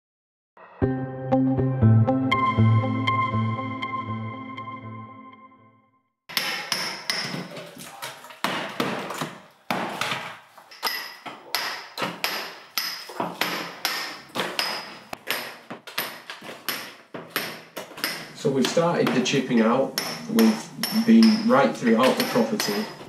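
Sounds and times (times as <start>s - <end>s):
background music: 0.6s - 6.0s
hammer striking chisel: 6.3s - 23.0s.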